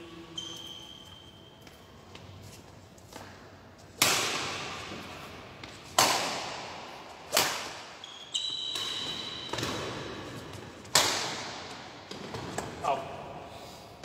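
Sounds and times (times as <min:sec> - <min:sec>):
rackets hitting shuttlecock: 0:03.9 - 0:12.8.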